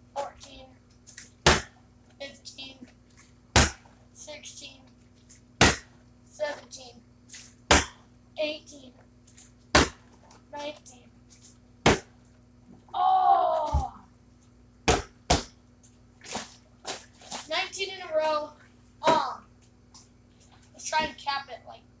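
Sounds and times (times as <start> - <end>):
steady low hum: 0.0 - 22.0
short groaning voice: 12.9 - 14.0.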